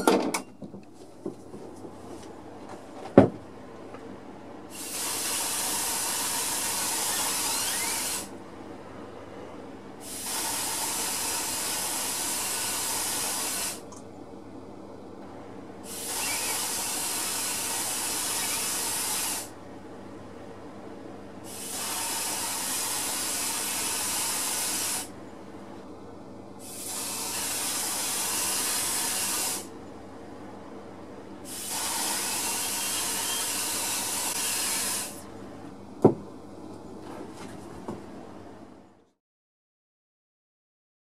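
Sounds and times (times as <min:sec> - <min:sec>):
mouth-blown airbrush hissing: 0:04.8 - 0:08.3.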